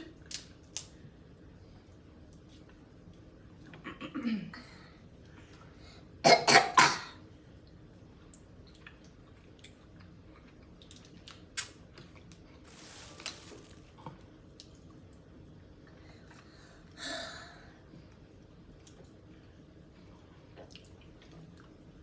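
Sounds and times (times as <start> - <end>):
person coughing: 3.9 - 4.6, 6.2 - 7.2.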